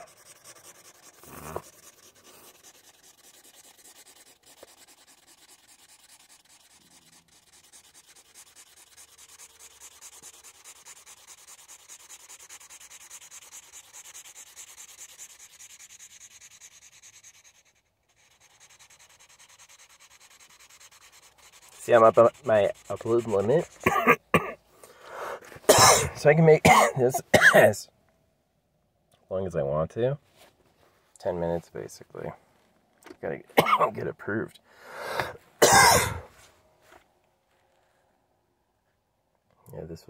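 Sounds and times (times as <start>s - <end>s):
marker scratching on paper: 0.0s - 24.2s.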